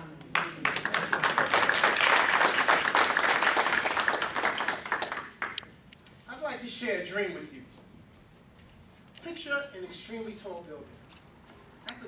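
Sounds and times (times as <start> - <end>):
audience applause: 0.6 - 5.6.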